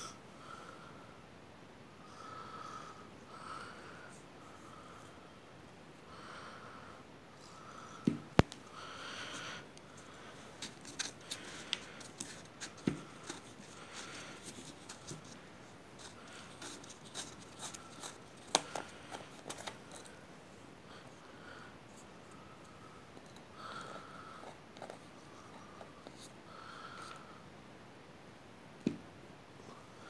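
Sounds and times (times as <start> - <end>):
plastic screw cap twisted off: 16.6 - 20.1.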